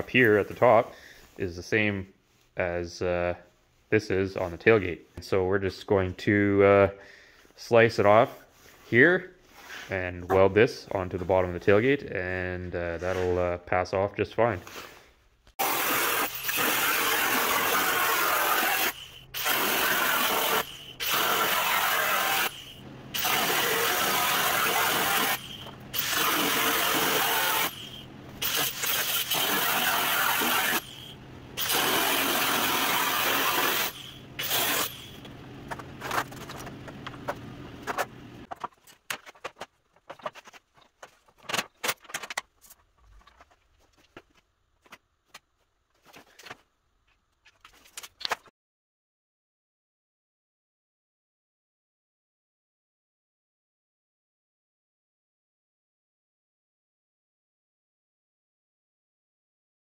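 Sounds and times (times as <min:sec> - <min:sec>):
angle grinder cutting steel: 0:15.6 - 0:35.3.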